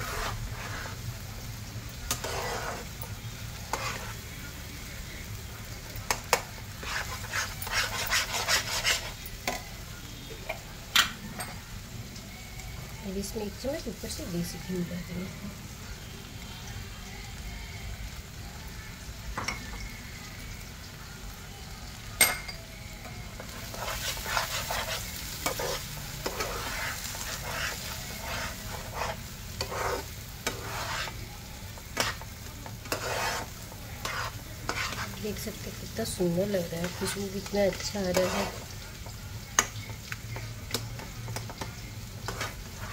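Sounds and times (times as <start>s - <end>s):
spatula scraping pan: 0.0s - 1.1s, 2.1s - 4.4s, 6.1s - 9.6s, 23.4s - 38.8s, 40.7s - 42.9s
faint sizzle: 0.0s - 42.9s.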